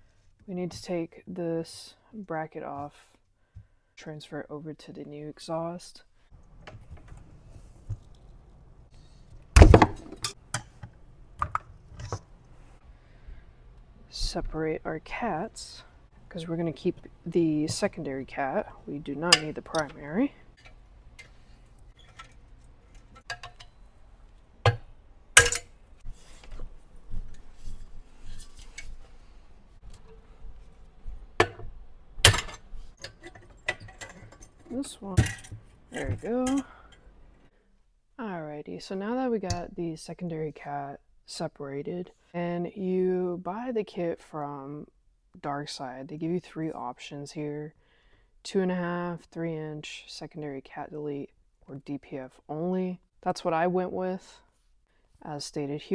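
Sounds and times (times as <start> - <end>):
metal pipes and tools clanking: 19.2 - 20.0, 25.4 - 25.8, 32.3 - 37.0
tools tapping and clicking on metal: 22.0 - 23.8, 25.4 - 25.7.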